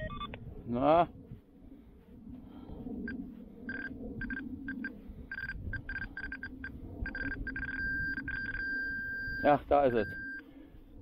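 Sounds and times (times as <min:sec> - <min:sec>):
metal detector beeping: 0:00.0 - 0:00.4, 0:03.7 - 0:10.4.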